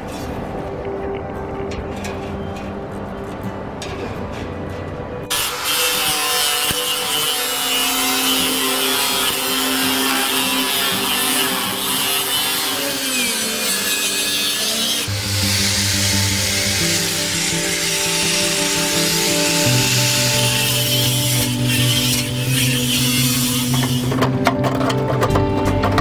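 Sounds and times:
angle grinder cutting metal: 5.3 - 25.1.

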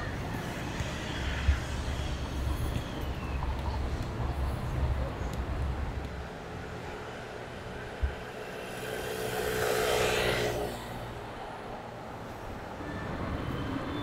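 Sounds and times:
traffic rumble: 0.0 - 14.0
vehicle passing by: 8.6 - 11.2.

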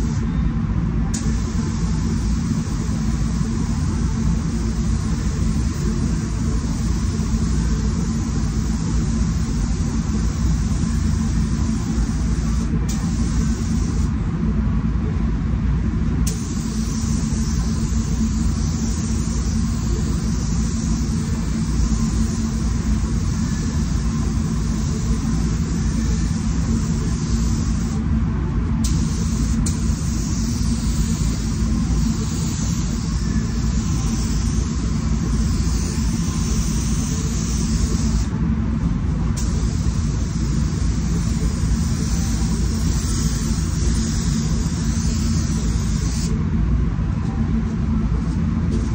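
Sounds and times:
spray gun hissing: 1.2 - 14.1, 16.3 - 28.0, 28.8 - 38.3, 39.4 - 46.4.

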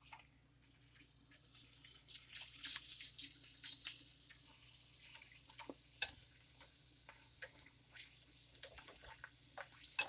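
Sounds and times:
snacks frying in hot oil: 0.0 - 10.0
metal tongs clacking in pan: 5.0 - 7.7, 8.6 - 10.0.

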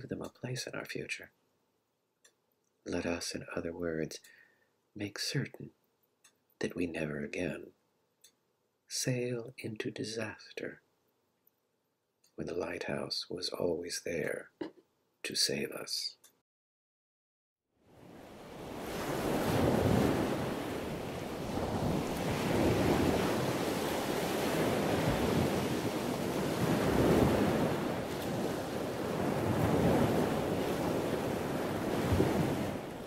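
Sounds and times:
wind: 17.8 - 33.0
ocean waves breaking: 17.9 - 33.0.

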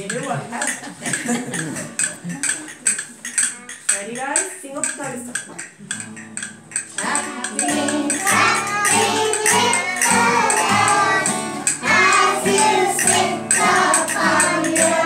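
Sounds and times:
jingling percussion shaken: 0.0 - 15.0
children singing with instruments: 6.9 - 15.0.

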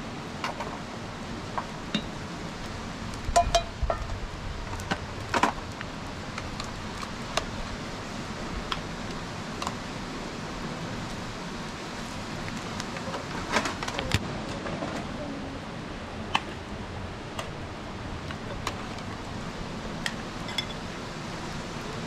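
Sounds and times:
bowls and spoons clinking on tray: 3.4 - 3.8, 20.4 - 20.8
ladle clinking against pot: 3.4 - 4.0.

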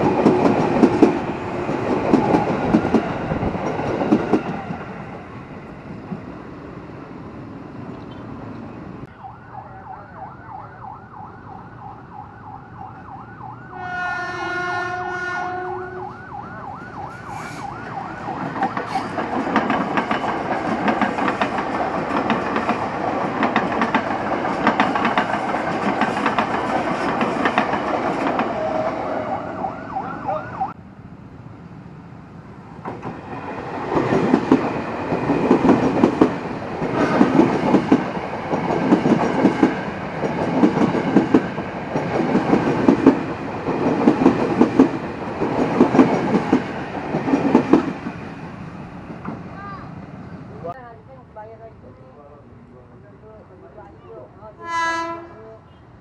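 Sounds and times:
electric train passing with whine: 0.0 - 56.0
train wheels clacking over rail joints: 18.5 - 28.6.

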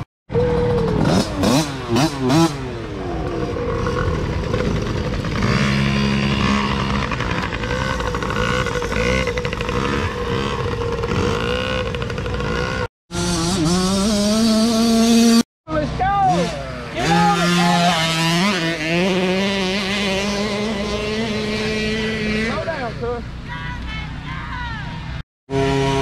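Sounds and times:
dirt bike engines revving: 0.0 - 26.0.

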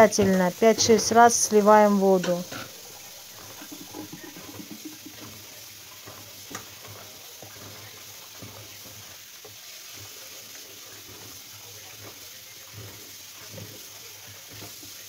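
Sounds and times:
tap running into bowl: 2.2 - 15.0.

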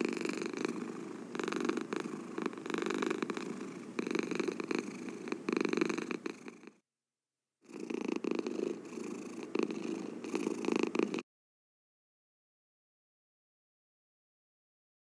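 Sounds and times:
cat purring: 0.0 - 6.8, 7.6 - 11.2.

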